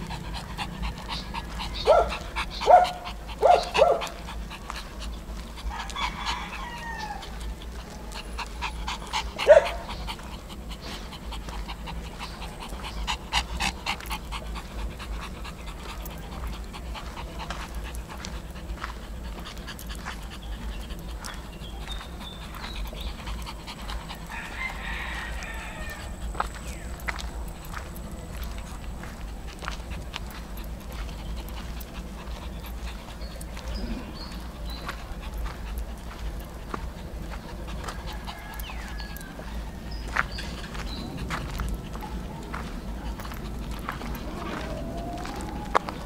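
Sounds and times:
dog panting: 0.0 - 46.0
dog barking: 1.7 - 4.2, 9.3 - 10.0.

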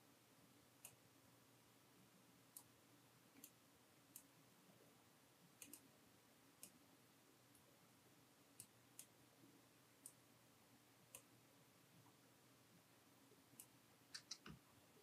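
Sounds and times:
faint computer mouse clicks: 5.6 - 5.8, 13.6 - 14.6.

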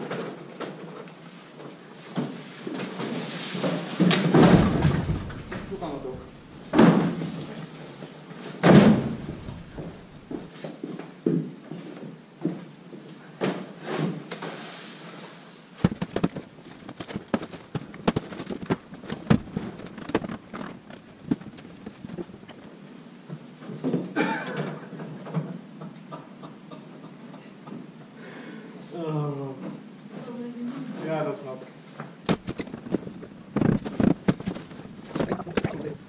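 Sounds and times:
materials knocking and clattering: 4.0 - 7.3, 8.6 - 10.5, 15.8 - 22.7, 32.3 - 36.0
footsteps: 4.2 - 7.2, 8.7 - 10.7, 15.8 - 22.7, 32.3 - 36.0.

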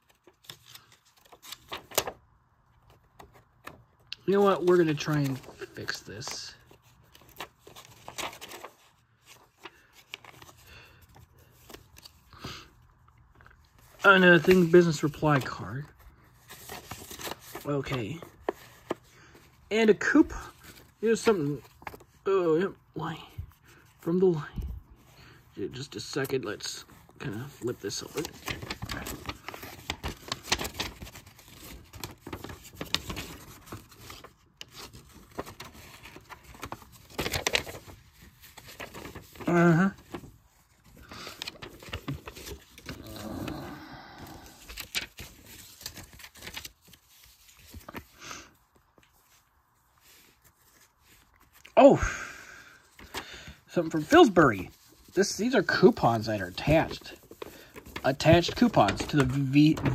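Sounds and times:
paper clicks and rustles: 0.0 - 51.8, 52.7 - 59.9.

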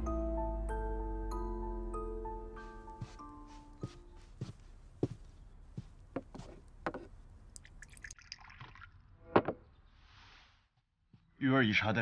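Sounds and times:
tea pouring into cups: 7.5 - 9.0.

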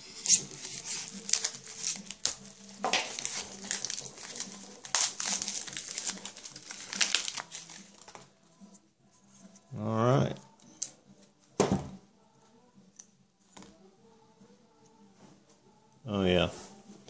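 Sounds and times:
plastic wrap crinkling: 0.2 - 8.2.

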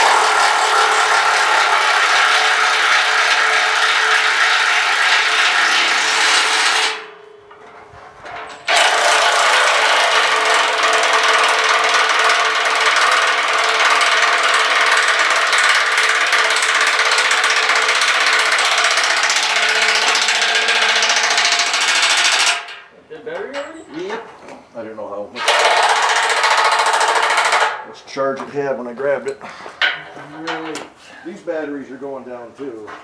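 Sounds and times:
impact wrench hammering: 0.0 - 22.9, 25.4 - 27.9.

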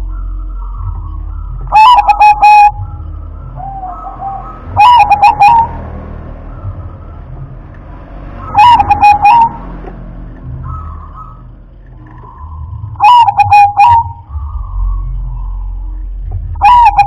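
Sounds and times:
steady low hum: 0.0 - 8.2, 8.9 - 17.0
dove cooing: 1.7 - 3.0, 3.6 - 5.8, 8.5 - 9.6, 13.0 - 14.6, 16.4 - 17.0.

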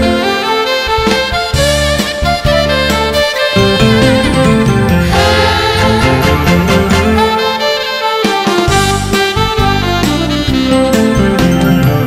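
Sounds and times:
instrumental melody of held notes: 0.0 - 12.0
low bass notes: 1.6 - 7.7.

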